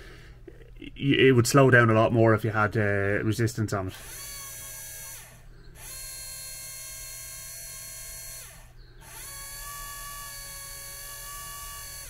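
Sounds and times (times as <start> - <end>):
wiper motor electric whine: 4.0 - 12.0.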